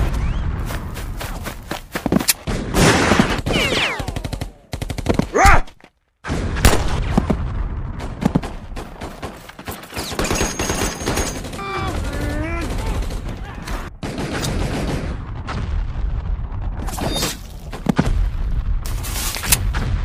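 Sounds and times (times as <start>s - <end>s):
rifle and machine-gun fire: 6.6s - 16.8s.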